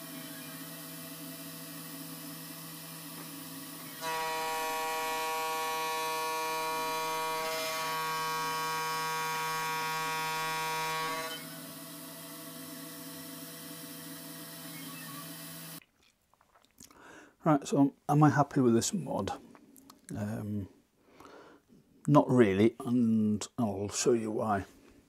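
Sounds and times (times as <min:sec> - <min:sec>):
spindle motor humming: 0:00.0 - 0:15.8
end mill cutting aluminium: 0:03.8 - 0:11.8.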